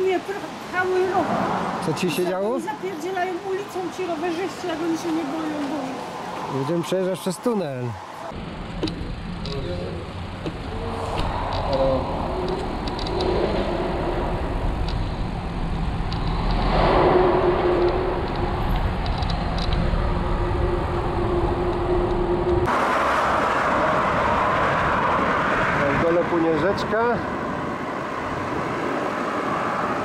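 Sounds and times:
tyres rolling on asphalt: 0:00.0 - 0:30.0
wind on microphone: 0:10.6 - 0:22.8.

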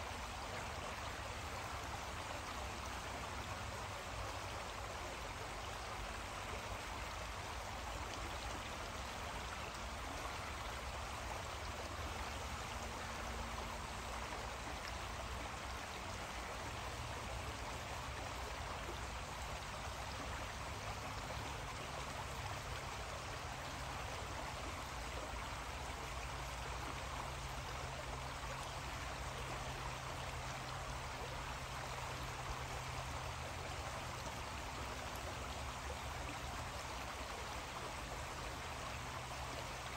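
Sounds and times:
creek water running: 0:00.0 - 0:39.9.

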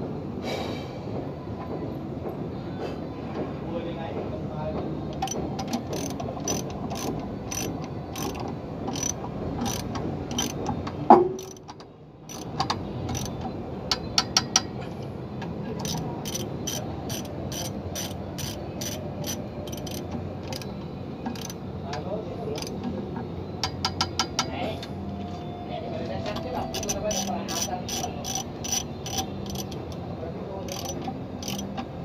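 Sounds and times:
ratchet wrench clicking: 0:05.1 - 0:14.7, 0:15.8 - 0:21.6, 0:22.6 - 0:22.9, 0:23.6 - 0:24.5, 0:26.6 - 0:30.0, 0:30.7 - 0:31.9.

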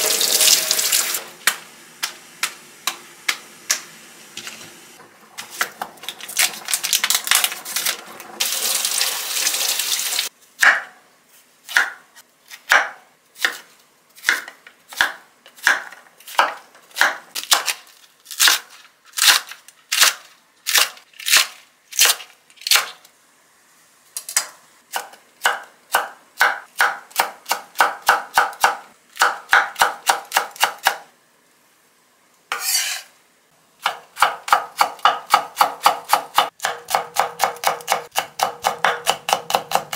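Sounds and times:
knife chopping on wooden board: 0:10.6 - 0:11.0, 0:12.7 - 0:13.6, 0:33.8 - 0:39.9.

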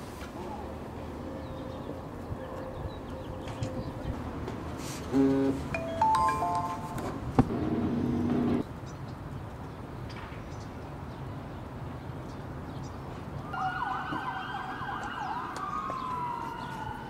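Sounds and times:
music: 0:05.8 - 0:07.0
emergency vehicle siren: 0:13.5 - 0:17.0.

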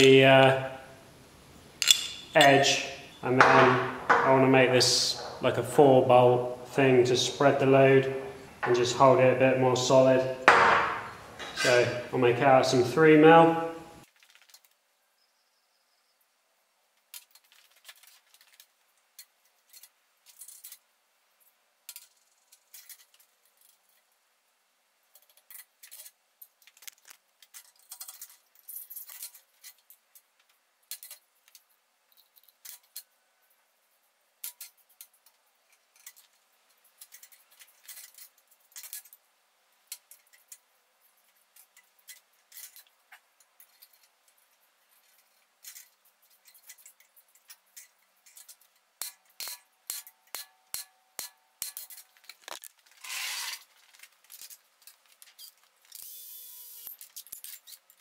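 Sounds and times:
metal tools clinking on steel: 0:01.8 - 0:05.6, 0:10.5 - 0:12.0.

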